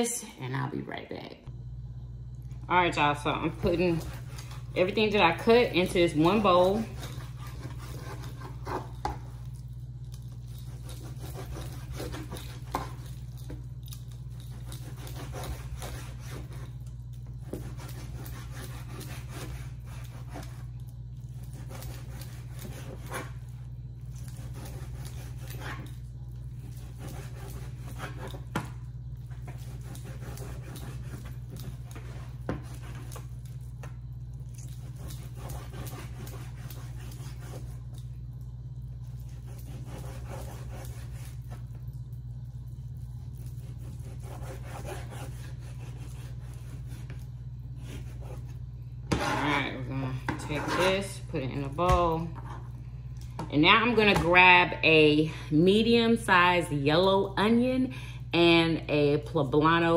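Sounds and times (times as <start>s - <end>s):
steady low hum: 0.0s - 59.9s
knife cutting meat on a board: 10.6s - 16.7s, 21.5s - 23.5s, 26.7s - 33.2s.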